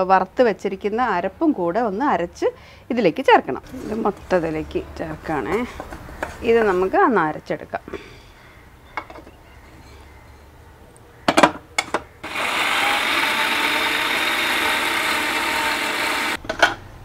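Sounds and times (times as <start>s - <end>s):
mixer grinder running: 12.2s - 16.4s.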